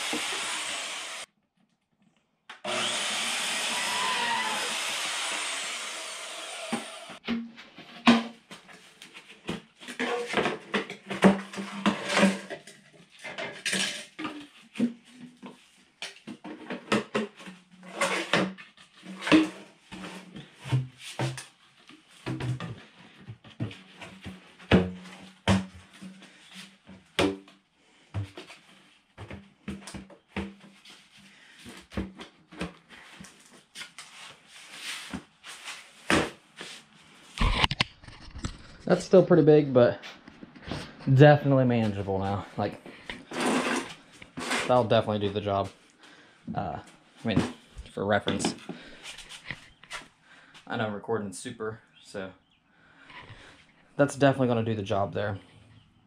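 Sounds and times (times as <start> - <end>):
bandsaw cutting plastic pipe: 0.0 - 1.3, 2.6 - 7.2, 43.2 - 45.0
plastic pipes knocking and clunking: 7.2 - 8.6, 9.4 - 21.5, 22.2 - 28.6.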